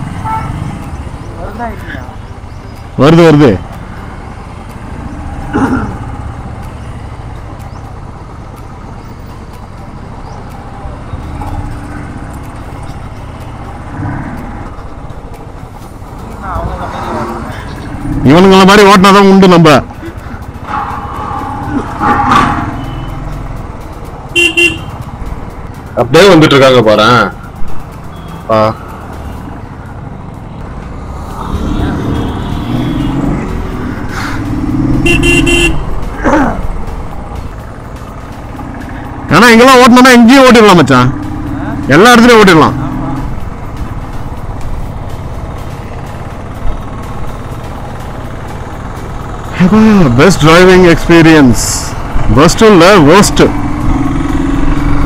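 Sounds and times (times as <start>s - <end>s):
road noise: 0.0s - 55.0s
street traffic noise: 0.0s - 55.0s
motorcycle engine running: 27.0s - 55.0s
short high-pitched vehicle horn: 35.0s - 35.8s.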